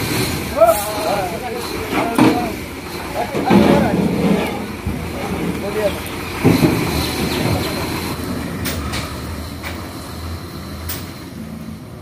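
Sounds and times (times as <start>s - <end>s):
truck engine running: 0.0s - 12.0s
metallic clanks of truck body: 1.5s - 10.0s, 10.8s - 11.4s.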